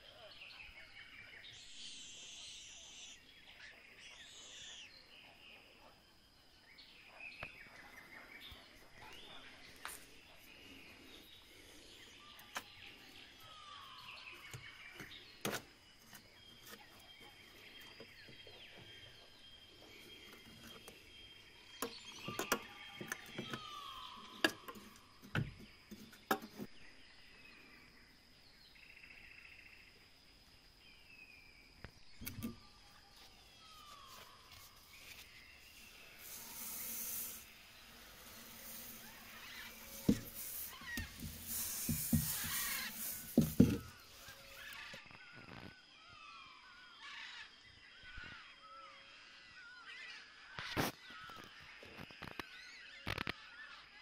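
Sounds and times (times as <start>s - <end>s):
bird calls: 0.0s - 6.0s, 6.6s - 27.9s, 30.9s - 54.0s
short hiss: 35.7s - 44.6s.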